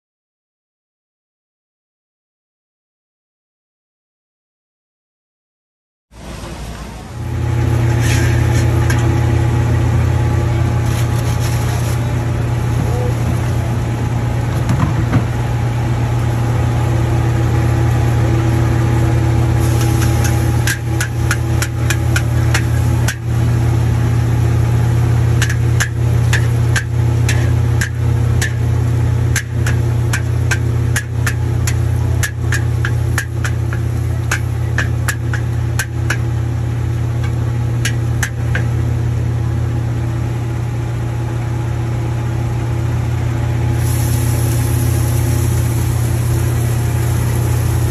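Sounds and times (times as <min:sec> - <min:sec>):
gas burner humming: 0:06.2 - 0:47.9
metal spatula scraping a wok: 0:07.8 - 0:09.1, 0:25.4 - 0:28.6
hot oil sizzling: 0:17.4 - 0:38.8, 0:43.6 - 0:47.9.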